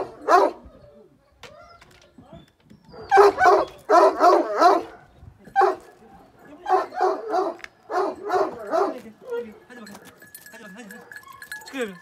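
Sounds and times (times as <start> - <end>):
dog barking: 0.0 - 0.9, 3.0 - 9.0.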